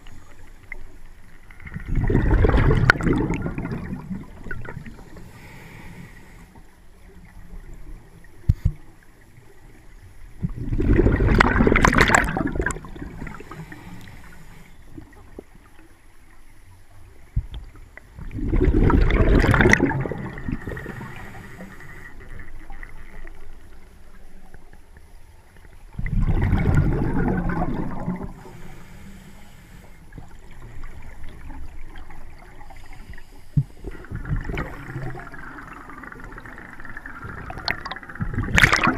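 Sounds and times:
diver exhaling bubbles underwater: 1.7 - 5.0, 10.4 - 13.6, 18.2 - 21.6, 26.0 - 28.5, 33.9 - 38.9.

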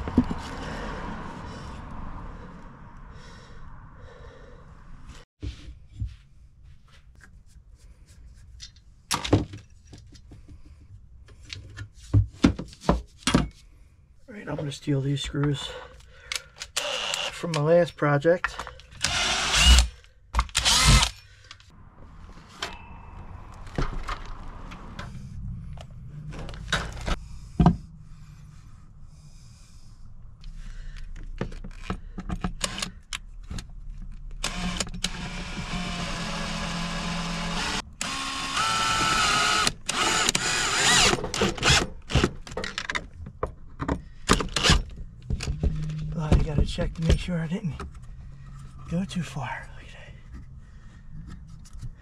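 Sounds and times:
power drill driving screws: 16.6 - 17.6, 19.0 - 21.2, 32.6 - 33.0, 34.4 - 42.4, 44.4 - 44.9
clicks and knocks of tools: 18.4 - 19.1.

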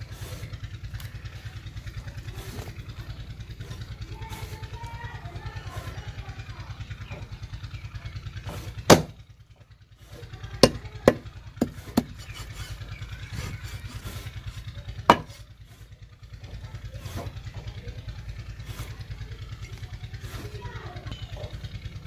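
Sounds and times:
cleaver chopping on wooden block: 8.5 - 9.2, 10.6 - 12.5, 15.1 - 15.4.

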